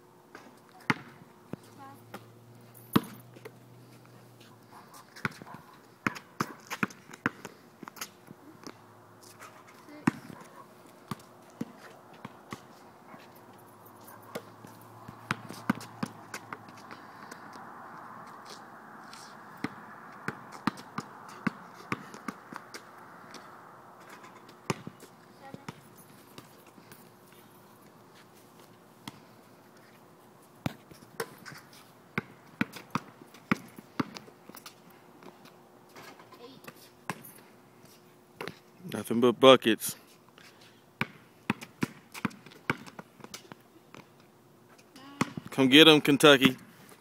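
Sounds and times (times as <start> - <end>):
basketball bouncing on court: 0.8 - 1.2, 3.0 - 3.2, 10.0 - 10.4, 11.1 - 12.7, 14.3 - 16.9, 19.6 - 22.8, 24.7 - 25.8, 32.2 - 34.2, 41.0 - 43.0, 45.2 - 45.5.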